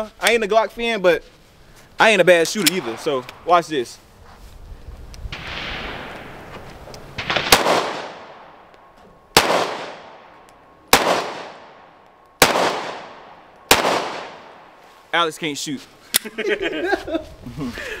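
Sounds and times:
pistol shots with echo: 7.2s - 8.6s, 9.3s - 10.3s, 10.9s - 14.6s.

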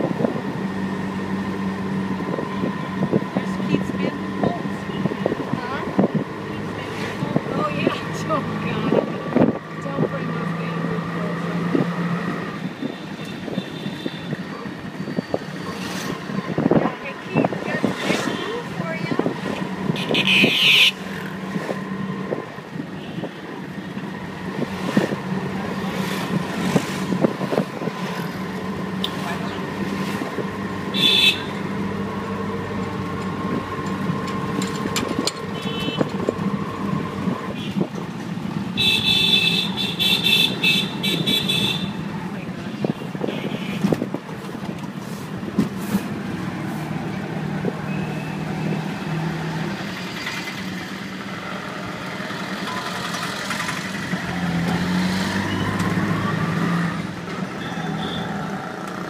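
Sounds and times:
auto rickshaw engine running: 0.0s - 59.0s
road and wind noise: 0.0s - 59.0s
horn beeping: 20.0s - 21.0s.

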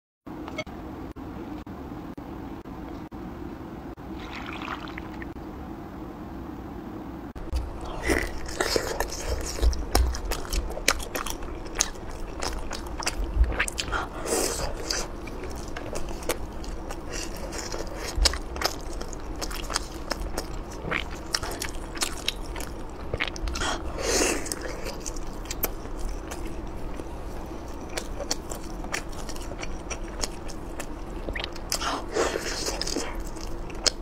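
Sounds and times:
person chewing: 7.4s - 34.0s.

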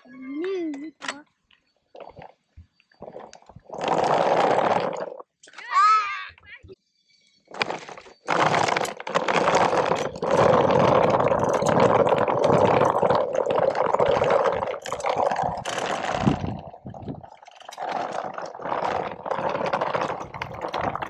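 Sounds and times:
toy wagon wheels rolling on gravel: 3.0s - 5.3s, 7.5s - 21.0s.

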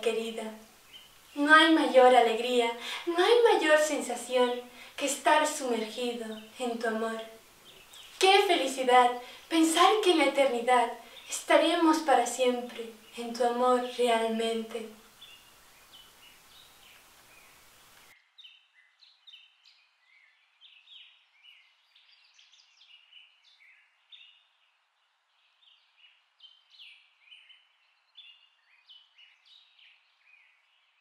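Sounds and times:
steady hiss: 0.0s - 18.2s
birds chirping: 0.0s - 18.6s.

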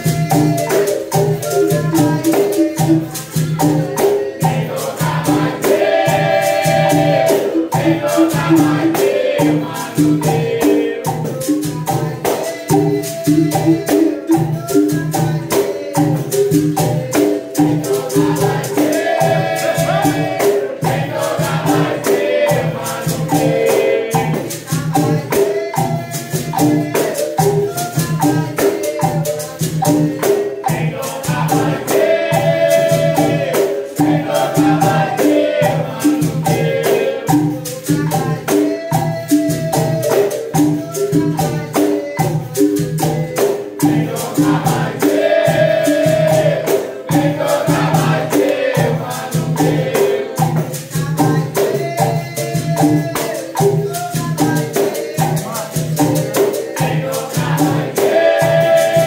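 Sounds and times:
berimbau twanging rhythm: 0.0s - 59.0s
hand drum: 0.0s - 59.0s
voices singing: 0.0s - 59.0s
tambourine: 49.5s - 59.0s.

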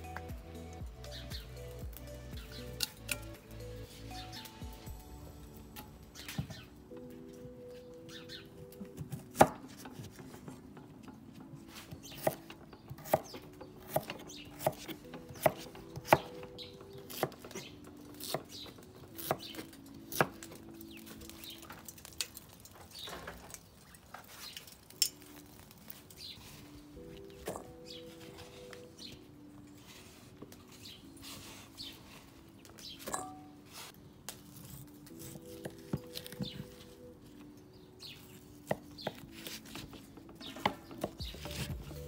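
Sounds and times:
soft background music: 0.0s - 42.0s
knife chopping on wooden board: 12.1s - 16.3s.

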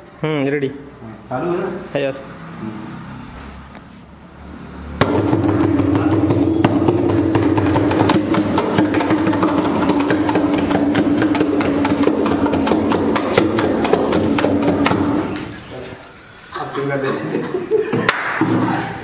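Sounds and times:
hand drum fast rhythm: 5.0s - 15.3s.

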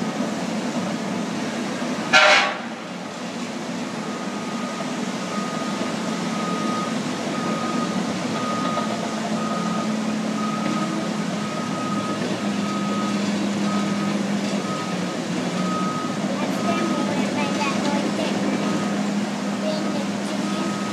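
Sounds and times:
diesel engine drone: 0.0s - 20.9s
backup alarm beeping: 4.0s - 15.0s, 15.6s - 20.9s.

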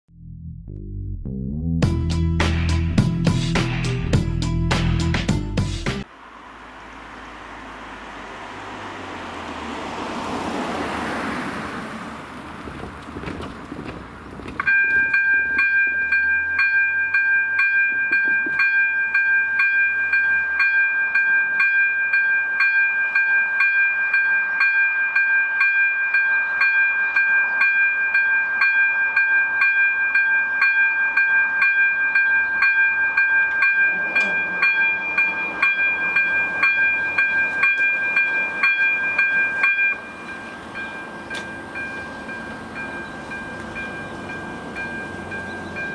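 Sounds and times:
level crossing warning bell: 14.6s - 45.9s.

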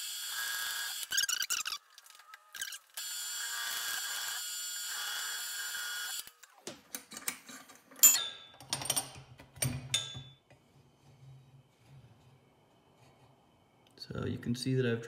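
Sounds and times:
drill press motor whine: 0.0s - 1.1s, 2.2s - 6.3s.

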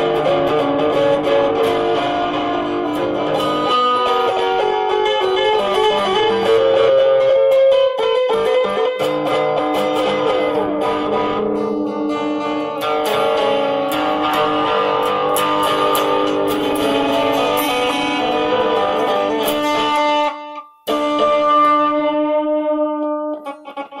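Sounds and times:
electric guitar solo: 0.0s - 24.0s.

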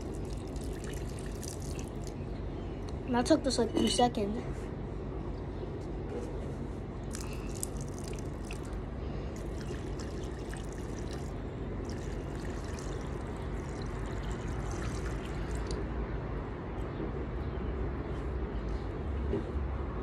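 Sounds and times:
water splashing on ground: 0.0s - 2.2s, 7.1s - 8.8s, 9.4s - 15.8s
low background rumble: 0.0s - 20.0s.

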